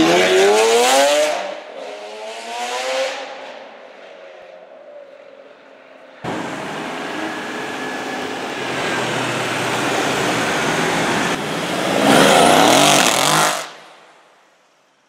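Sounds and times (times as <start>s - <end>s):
car engine revving as it drives off: 6.2s - 13.7s.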